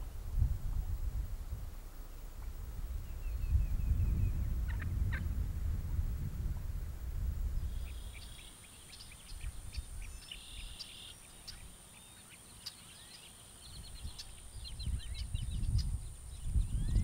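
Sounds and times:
birds chirping: 2.1 - 5.3, 7.6 - 17.0.

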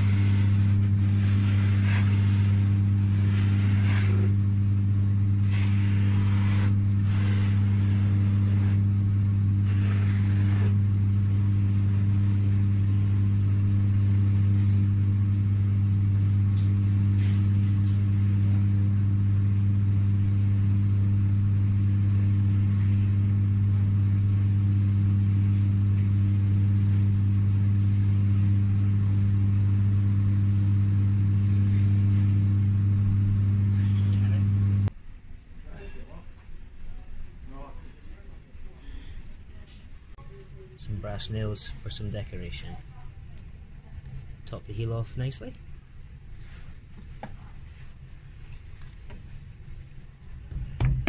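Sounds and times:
buffing machine humming: 0.0 - 34.9.

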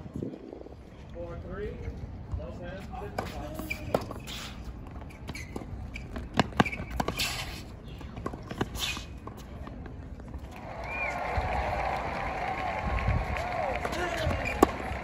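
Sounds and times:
balls bouncing on hard court: 2.3 - 10.6, 13.4 - 15.0
tennis balls struck by rackets: 5.3 - 10.7, 13.4 - 15.0.

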